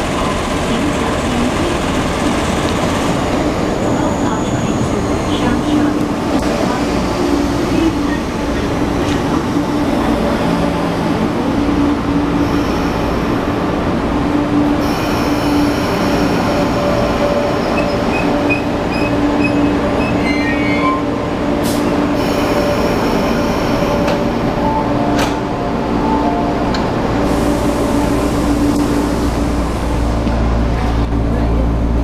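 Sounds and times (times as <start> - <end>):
wheel and brake squeal: 17.6 - 21.1.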